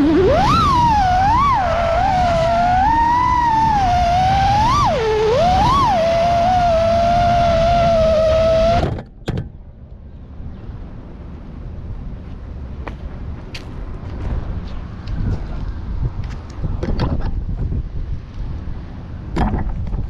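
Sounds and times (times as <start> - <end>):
drone motors whining: 0.0 - 9.1.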